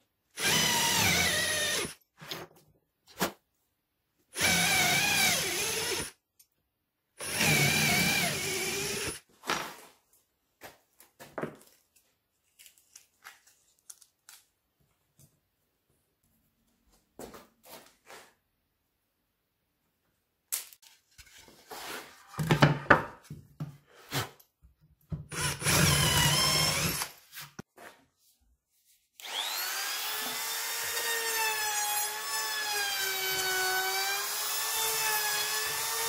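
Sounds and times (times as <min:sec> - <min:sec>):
cordless drill running: 0:00.4 - 0:01.9, 0:04.4 - 0:06.1, 0:07.2 - 0:09.2, 0:25.3 - 0:27.1, 0:29.2 - 0:36.0
router whining: 0:00.4 - 0:01.9, 0:04.4 - 0:06.1, 0:07.2 - 0:09.2, 0:25.3 - 0:27.1, 0:29.2 - 0:36.0.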